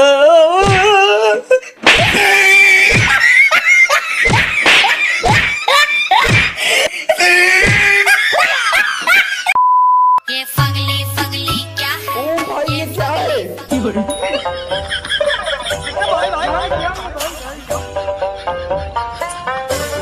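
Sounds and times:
sharp slaps: 0:00.6 - 0:00.9, 0:01.8 - 0:03.2, 0:04.2 - 0:06.6
censor beep: 0:09.6 - 0:10.2
music: 0:10.2 - 0:20.0.

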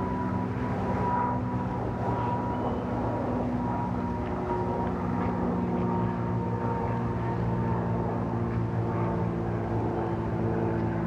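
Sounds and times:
engine drone with held tones: 0:00.0 - 0:11.0.

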